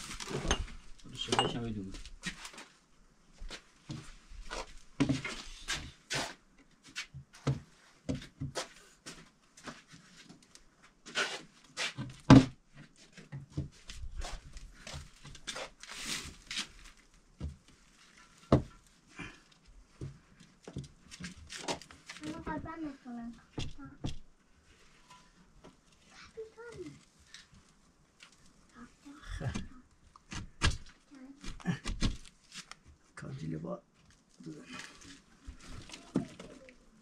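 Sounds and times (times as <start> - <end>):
objects knocking and clattering: 0.1 - 1.8, 17.4 - 18.8.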